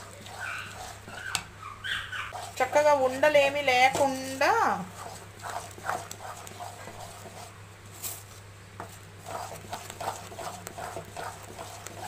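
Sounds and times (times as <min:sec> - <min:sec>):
low steady hum: 0:00.0 - 0:12.0
spatula scraping metal pan: 0:02.3 - 0:02.9.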